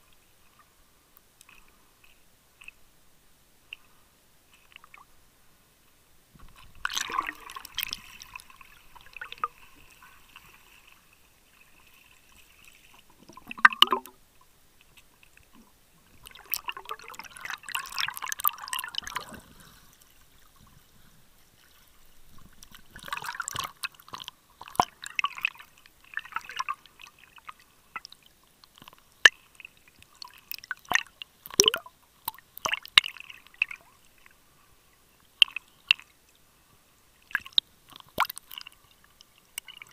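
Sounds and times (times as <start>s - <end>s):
water splashes: 6.4s - 14.2s, 14.8s - 34.3s, 37.2s - 39.9s
water sloshing and gurgling: 6.4s - 34.5s, 37.2s - 39.9s.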